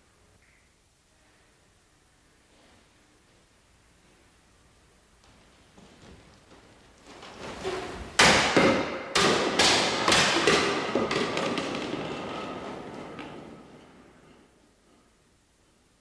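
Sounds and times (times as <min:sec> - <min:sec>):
bamboo pieces clattering on wood floor: 0:07.0 - 0:14.4.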